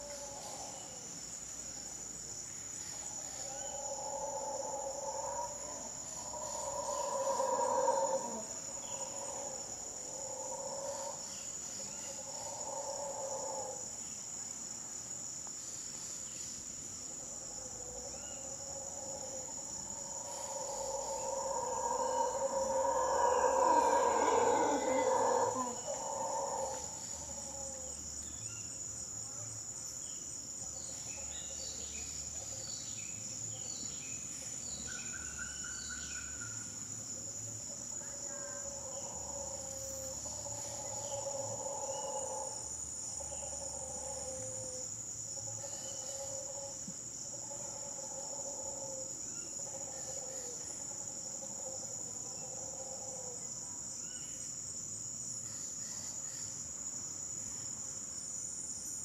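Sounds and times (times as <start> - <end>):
high-pitched insect chorus: 0.0 - 59.0
howler monkey roars: 3.4 - 11.3, 12.1 - 13.8, 17.6 - 28.0, 38.0 - 44.8.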